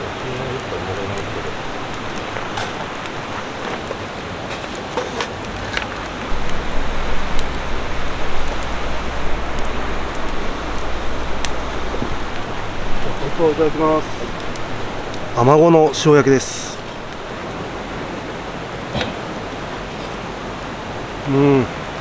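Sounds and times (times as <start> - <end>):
low rumble: 0.0 - 3.7, 6.3 - 18.1
stream rushing: 0.0 - 22.0.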